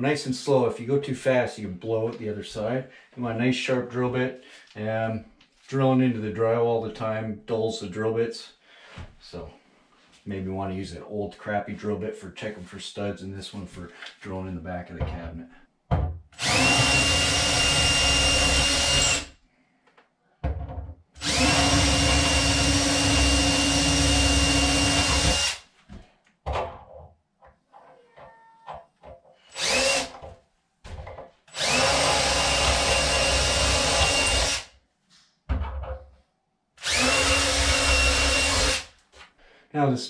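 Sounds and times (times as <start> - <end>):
cordless drill whining: 16.4 - 19.3, 21.2 - 25.6, 29.5 - 30.2, 31.5 - 34.7, 36.8 - 38.9.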